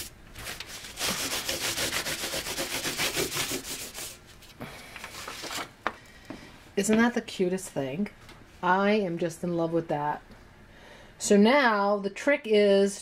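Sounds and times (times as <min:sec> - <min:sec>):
sandpaper rubbing metal foil: 0:00.0 - 0:04.2.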